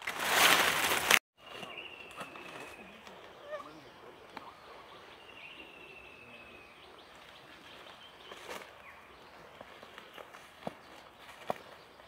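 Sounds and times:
rustling through dry leaves: 0:00.0 - 0:03.1, 0:07.1 - 0:11.8.

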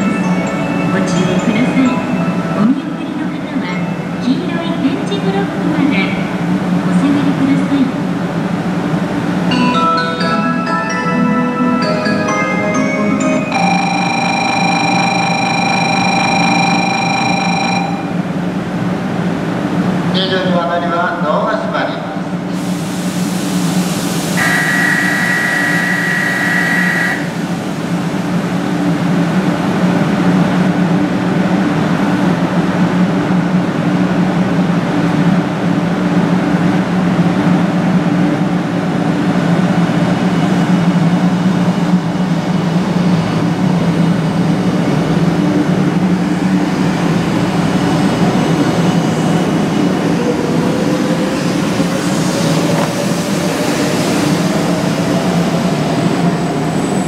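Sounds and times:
train rushing noise: 0:10.5 - 0:57.0
train motors humming: 0:11.3 - 0:20.1, 0:22.1 - 0:57.0
electronic signal tone: 0:13.5 - 0:18.2, 0:24.4 - 0:27.4.

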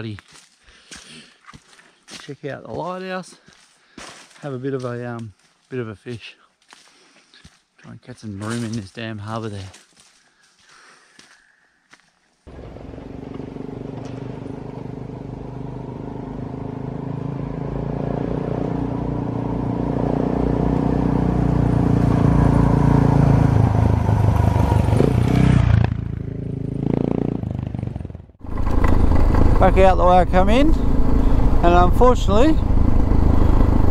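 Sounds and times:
motorcycle engine riding off: 0:12.5 - 0:33.9.

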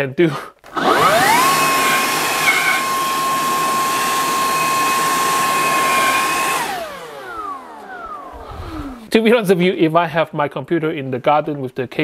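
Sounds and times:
leaf blower whining: 0:00.7 - 0:09.2
rush of air: 0:08.2 - 0:09.1.

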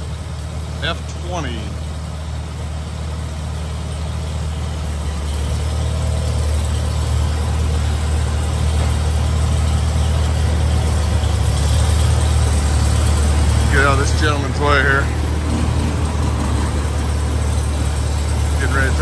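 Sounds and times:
tractor engine idling: 0:00.0 - 0:19.0.

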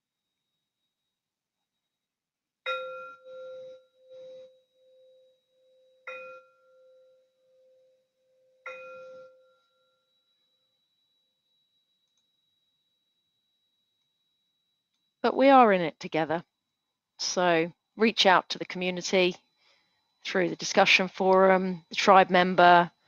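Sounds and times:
singing bowl ringing: 0:02.7 - 0:15.6.

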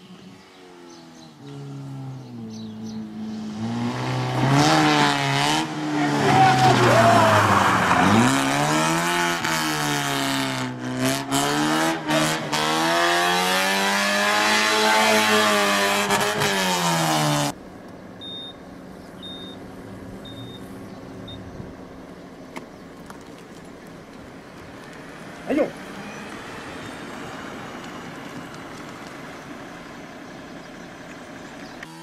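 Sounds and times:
car engine revving: 0:00.0 - 0:32.0
short high beeps: 0:18.2 - 0:18.6, 0:19.2 - 0:19.6, 0:20.2 - 0:20.6.

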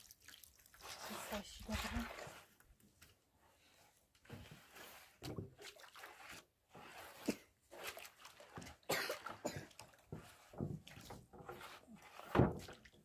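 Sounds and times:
hand stirring wet cement: 0:00.0 - 0:13.0.

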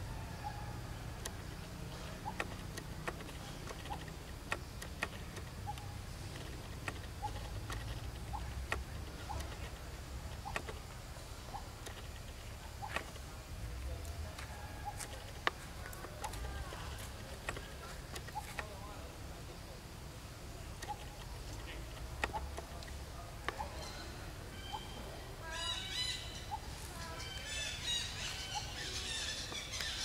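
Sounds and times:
clicks and crackles of dry leaves: 0:00.9 - 0:19.6.

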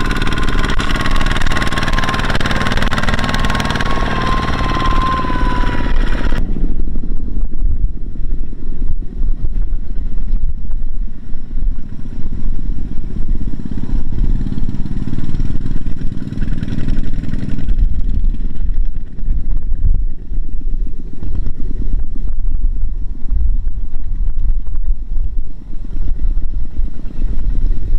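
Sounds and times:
diesel engine running under load: 0:00.0 - 0:07.1, 0:11.5 - 0:19.8.

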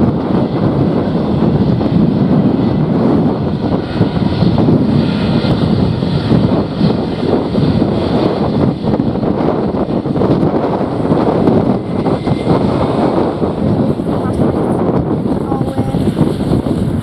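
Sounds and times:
jet engines at low thrust: 0:00.0 - 0:17.0
wind rumble on microphone: 0:00.0 - 0:17.0.

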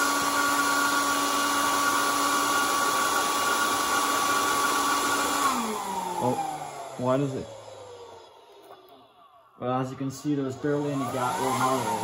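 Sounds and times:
fan whirring with whine: 0:00.0 - 0:12.0.

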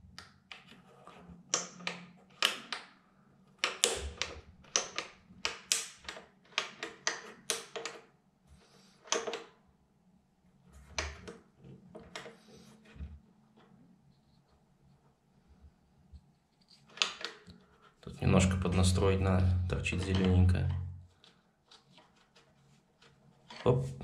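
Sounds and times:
plastic knob clicks and taps: 0:03.6 - 0:08.0.

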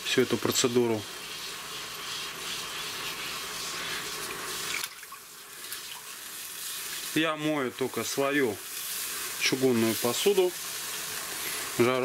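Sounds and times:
water sloshing and hissing in pan: 0:00.4 - 0:12.0
brush scrubbing pan: 0:00.5 - 0:04.8.

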